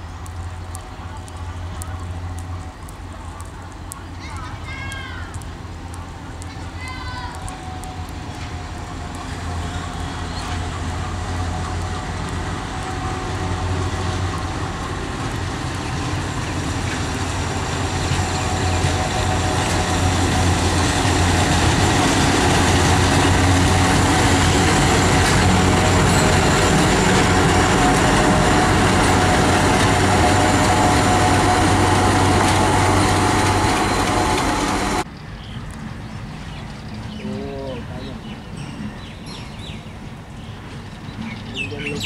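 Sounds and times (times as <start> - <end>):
diesel locomotive engine drone: 0.0 - 42.0.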